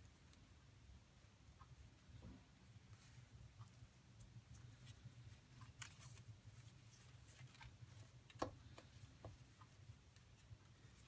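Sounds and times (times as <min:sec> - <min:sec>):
low steady hum: 0:00.0 - 0:11.0
cord rustling and ticking: 0:01.4 - 0:11.0.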